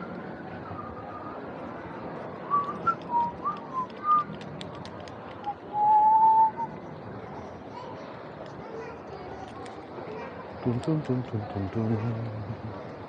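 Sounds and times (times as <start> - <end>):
steady background noise: 0.0 - 13.0
person whistling a tune: 5.7 - 6.7.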